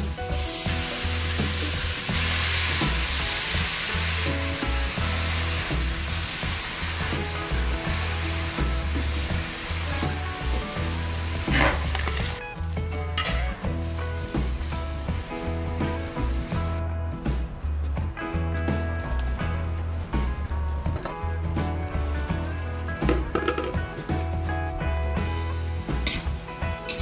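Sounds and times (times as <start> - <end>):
vegetables sizzling in pan: 0.0 - 16.8
background music: 0.0 - 27.0.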